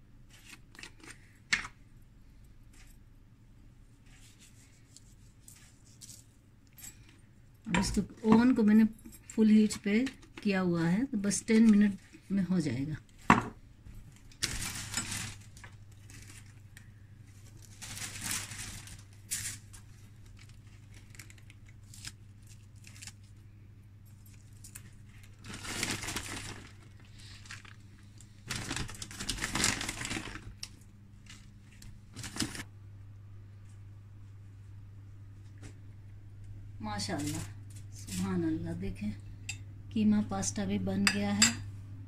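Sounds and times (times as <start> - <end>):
steady low hum: 1.1 - 42.0
toppings rustling on baking paper: 3.9 - 7.0, 14.0 - 23.4, 24.0 - 32.7, 37.0 - 38.5.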